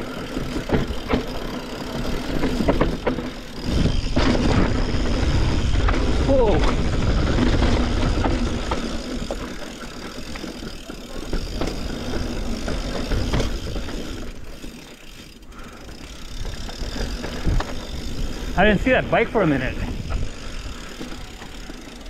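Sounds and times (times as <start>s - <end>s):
bike clicks and rattles: 0.0s - 22.0s
bike tyres rolling over dirt: 0.0s - 22.0s
wind rumbling on microphone: 3.6s - 8.8s, 19.7s - 20.9s.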